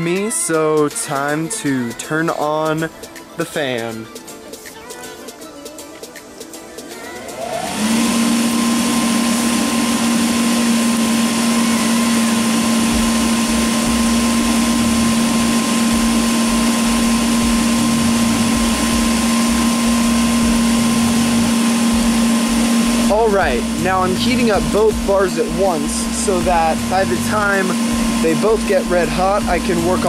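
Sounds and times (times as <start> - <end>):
forge blower fan humming: 6.9 - 30.0.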